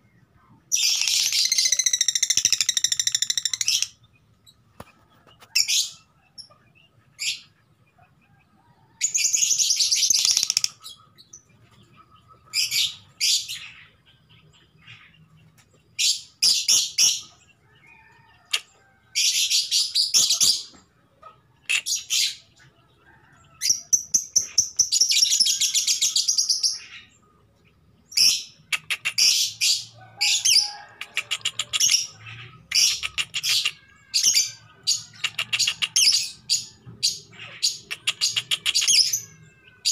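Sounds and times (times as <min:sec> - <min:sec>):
lovebird shrill chattering calls: 0:00.8 - 0:03.9, 0:09.8 - 0:10.8.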